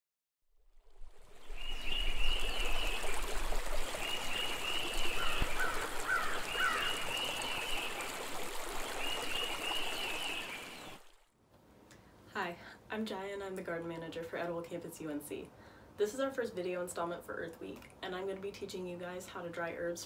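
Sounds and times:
stream water running: 0:00.6 - 0:11.4.

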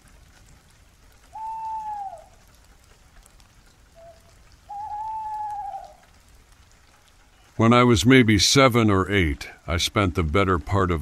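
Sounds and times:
steady rain: 0:00.0 - 0:11.0
animal calls: 0:01.4 - 0:02.4, 0:04.0 - 0:06.0.

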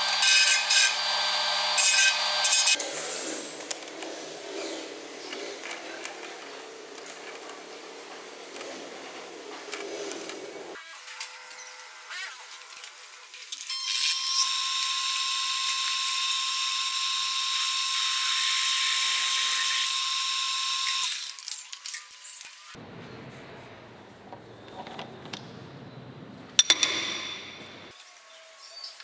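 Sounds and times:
lathe drilling high whine: 0:00.0 - 0:02.8, 0:13.9 - 0:21.2.

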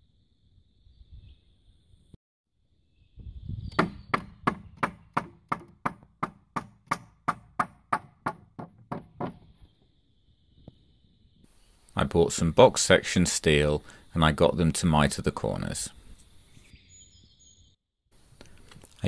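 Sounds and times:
sharp knocks on wood: 0:03.8 - 0:09.5.

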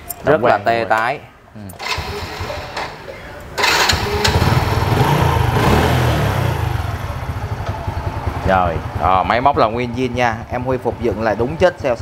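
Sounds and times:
small motorcycle engine starting: 0:01.8 - 0:03.0, 0:03.6 - 0:07.1.

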